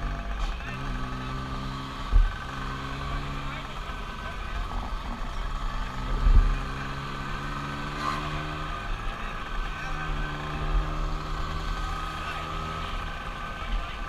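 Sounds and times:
scooter engine running: 0.0s - 14.0s.

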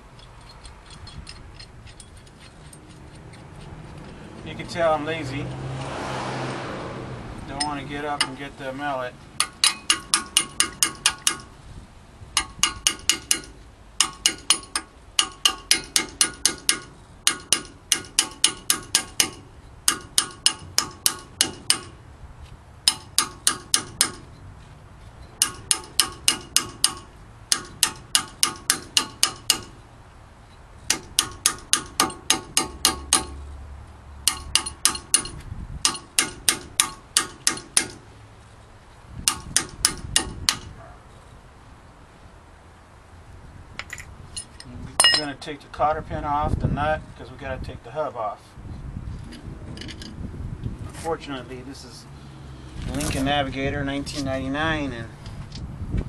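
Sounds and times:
steel tool tapping metal cap: 9.4s - 11.5s, 12.4s - 22.0s, 22.8s - 24.3s, 25.4s - 29.8s, 34.2s - 38.0s, 45.0s - 45.3s.

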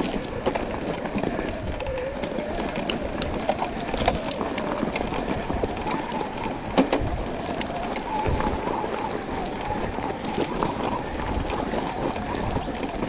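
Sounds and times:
bike tyres on dirt and stones: 0.0s - 13.0s.

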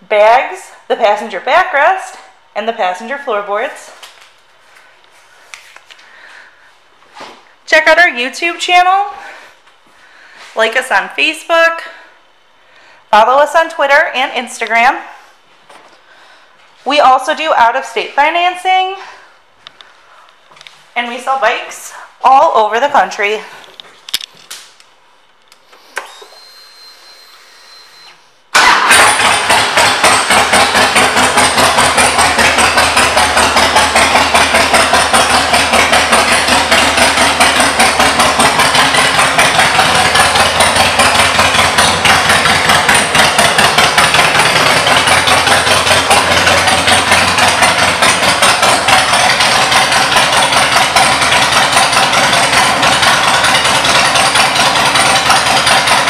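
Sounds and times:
motorcycle engine idling: 29.1s - 56.0s.

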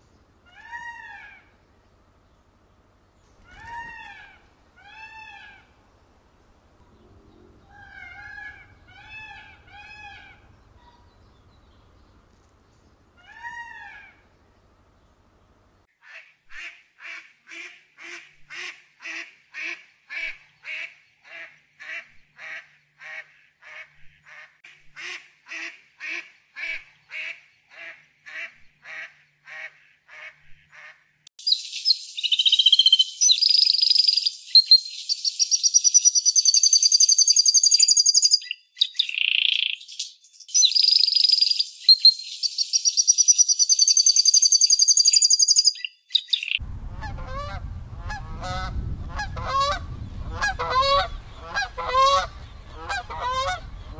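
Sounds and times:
duck quacking: 16.0s - 31.0s, 46.9s - 53.9s
canary trilling song: 31.4s - 46.6s.

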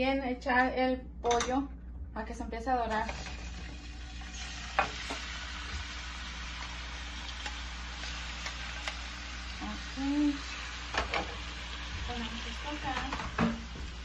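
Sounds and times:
chicken sizzling in frying pan: 3.1s - 14.0s.

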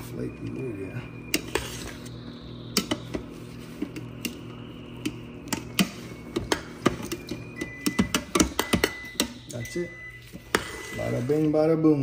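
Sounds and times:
steady low hum: 0.0s - 12.0s
metal spoon scraping a pot: 1.3s - 2.1s.

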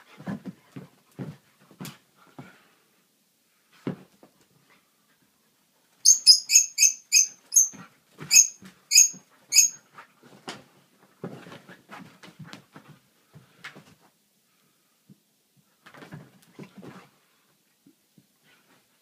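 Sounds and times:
high-pitched animal squeaks: 6.1s - 9.8s.

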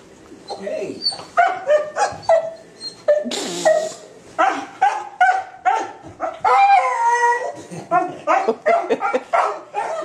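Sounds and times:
dog whining and yelping: 0.4s - 10.0s.

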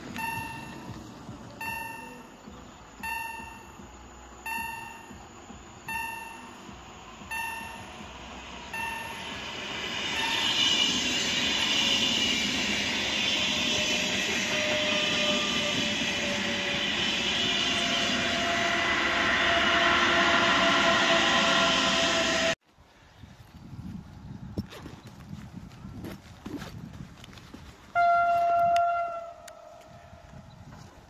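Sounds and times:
electric train passing: 0.0s - 22.6s
faint train whine: 0.0s - 22.9s, 27.8s - 31.0s
bell-like ding: 0.2s - 1.0s, 1.6s - 2.3s, 3.0s - 3.8s, 4.5s - 5.2s, 5.9s - 6.7s, 7.3s - 8.0s, 8.7s - 9.4s, 10.1s - 10.8s.

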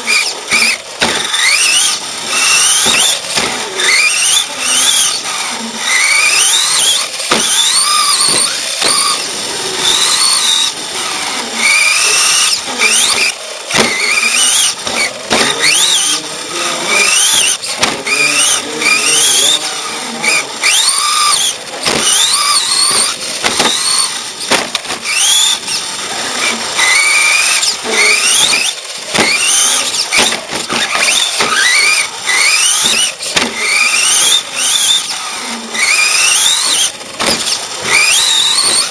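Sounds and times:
electric motor whining: 0.0s - 38.9s
chassis knocks and rattles: 0.5s - 5.1s, 6.5s - 10.6s, 12.3s - 15.9s, 17.1s - 18.5s, 20.6s - 34.8s, 36.0s - 38.9s.

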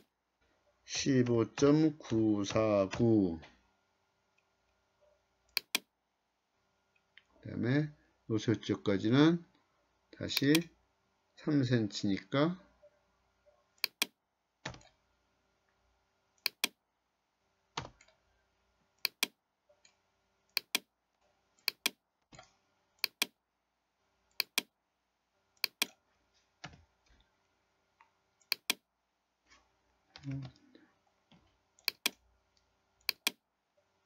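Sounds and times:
computer mouse clicking: 5.5s - 5.9s, 10.4s - 10.7s, 13.8s - 15.0s, 16.4s - 16.8s, 19.0s - 20.9s, 21.6s - 23.4s, 24.3s - 24.7s, 25.6s - 26.0s, 28.4s - 28.8s, 31.3s - 33.4s.

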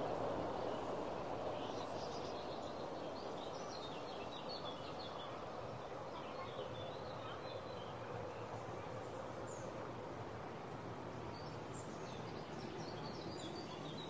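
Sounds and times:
steady background hiss: 0.0s - 7.3s
faint small birds twittering: 0.6s - 9.9s, 10.6s - 14.0s.

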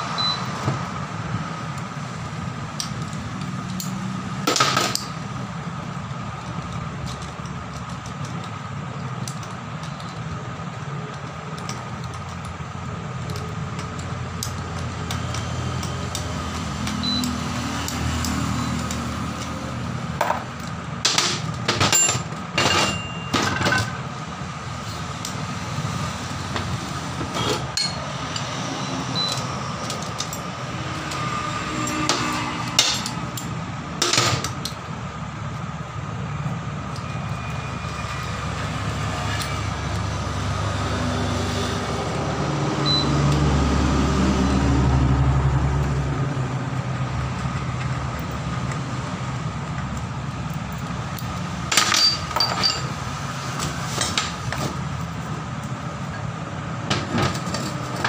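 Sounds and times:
metal tools clinking on steel: 2.8s - 5.2s, 5.9s - 24.1s, 26.4s - 34.9s, 49.6s - 56.3s
sharp metal clanks: 20.2s - 24.0s, 27.3s - 28.6s, 29.2s - 34.8s, 51.2s - 53.0s.

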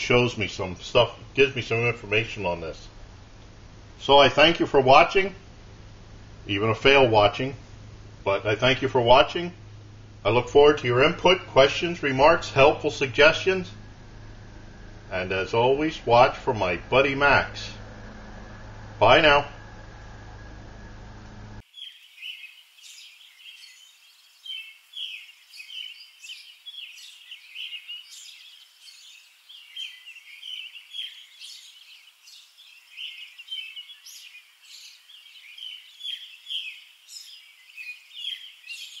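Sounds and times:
steady room hum: 0.0s - 21.7s
birds chirping and singing: 21.7s - 39.0s.

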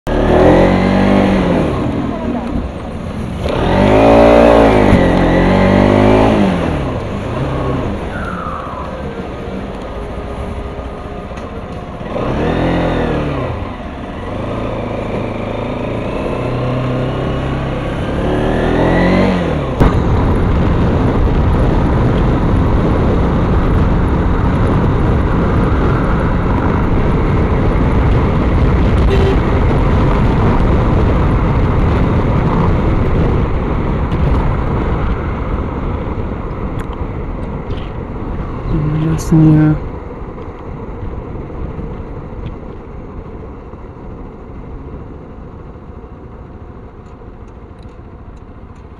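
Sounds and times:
motorcycle engine revving: 0.1s - 37.1s
wind rushing on camera: 0.1s - 48.9s.

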